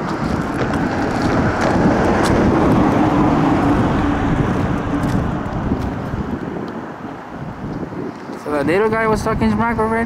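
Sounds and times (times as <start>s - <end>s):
vehicle engine rumbling: 0.0s - 10.0s.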